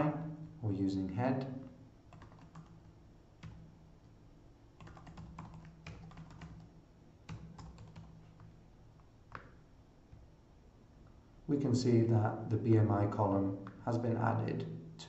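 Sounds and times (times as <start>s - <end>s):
typing on computer keyboard: 2.1s - 2.8s, 4.8s - 6.7s, 7.3s - 8.5s.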